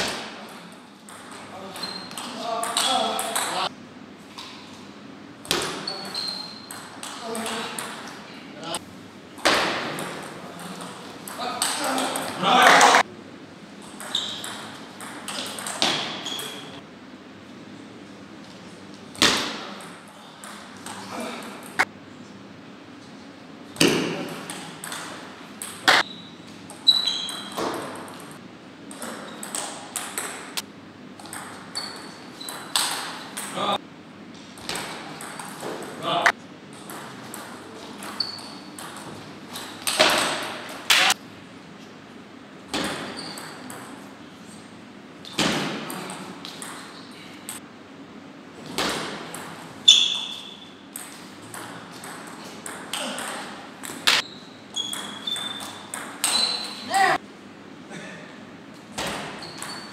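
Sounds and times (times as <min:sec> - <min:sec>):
short high squeaks: 0:01.7 - 0:02.3, 0:05.8 - 0:06.8, 0:14.1 - 0:14.5, 0:16.1 - 0:16.8, 0:25.9 - 0:27.6, 0:31.7 - 0:32.7, 0:43.1 - 0:43.7, 0:49.8 - 0:50.8, 0:54.1 - 0:57.0, 0:59.3 - 0:59.9
table tennis ball pinging: 0:13.9 - 0:16.7, 0:23.8 - 0:33.6, 0:34.6 - 0:36.0, 0:48.7 - 0:56.8.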